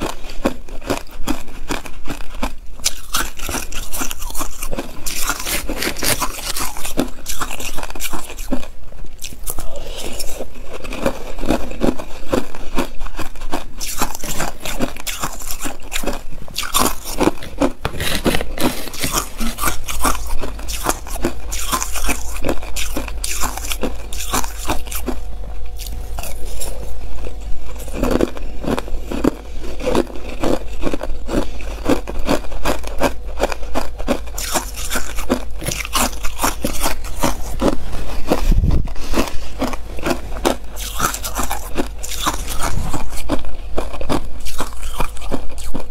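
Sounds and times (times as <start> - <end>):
ice crunched between teeth: 0.0 - 25.2, 25.8 - 45.9
metal spoon scraping crushed ice: 2.8 - 8.6, 13.3 - 25.2, 33.4 - 43.4.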